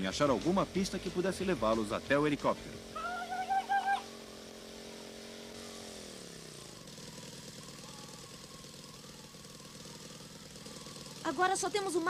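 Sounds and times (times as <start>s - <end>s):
cartoon engine chugging: 2.4s - 12.0s.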